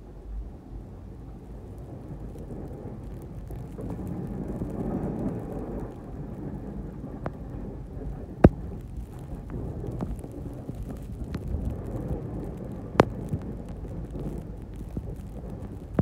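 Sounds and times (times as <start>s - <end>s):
truck engine and plow blade rumble: 0.0s - 16.0s
faint clicks: 8.4s - 16.0s.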